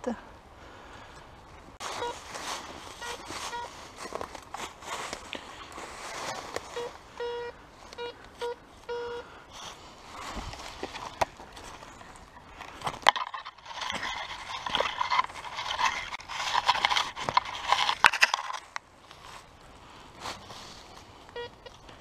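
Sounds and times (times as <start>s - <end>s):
digging tool scraping soil: 1.8s - 6.9s, 9.6s - 19.3s.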